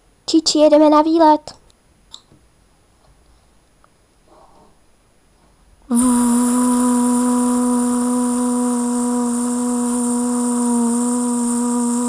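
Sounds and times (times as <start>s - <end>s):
steady held tone: 5.9s - 12.0s.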